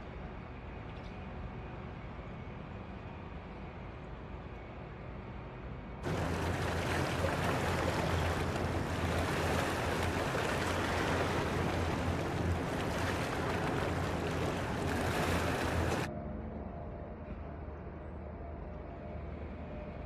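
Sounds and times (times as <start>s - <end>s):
wind: 0.0s - 20.0s
river water washing on shore: 6.0s - 16.1s.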